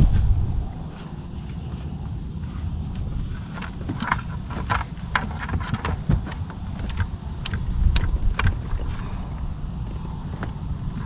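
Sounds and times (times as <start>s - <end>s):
low rumble: 0.0s - 11.0s
fishing gear clicking and knocking: 3.2s - 9.1s.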